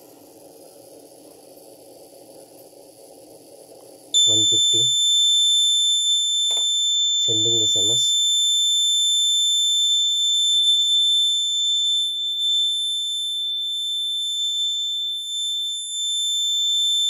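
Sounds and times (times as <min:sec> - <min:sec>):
high-pitched buzzer tone: 0:04.2 - 0:17.0.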